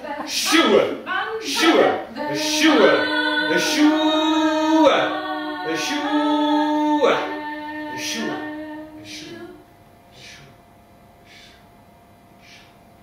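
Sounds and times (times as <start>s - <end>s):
voices singing long notes: 1.5s - 9.6s.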